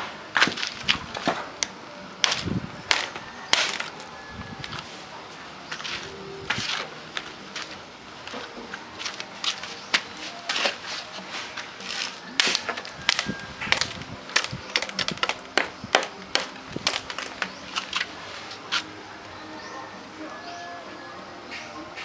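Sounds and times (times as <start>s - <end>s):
machete chopping wood: 12.4s - 17.3s.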